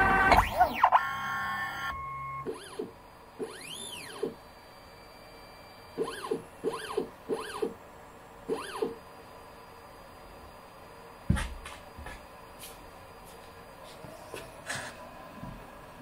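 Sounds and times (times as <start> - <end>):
stepper motors whining: 0.0 - 10.9
steady hum: 0.0 - 16.0.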